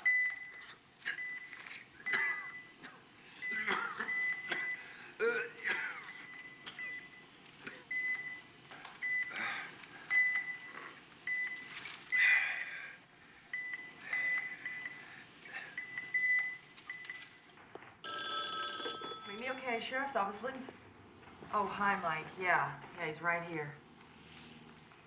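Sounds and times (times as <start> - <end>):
patient monitor beeps: 0.0 - 2.8, 3.4 - 4.9, 5.7 - 12.9, 13.5 - 20.4
telephone ringing: 18.0 - 20.4.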